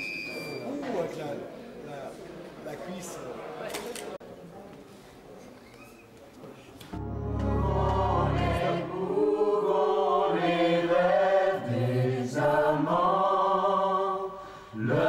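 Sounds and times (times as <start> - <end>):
deep low note: 7.0 - 8.9
voices singing long held notes: 7.0 - 15.0.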